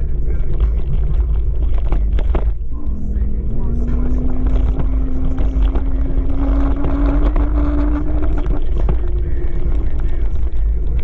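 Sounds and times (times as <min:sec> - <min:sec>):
electric motor whine: 0:02.8 - 0:10.9.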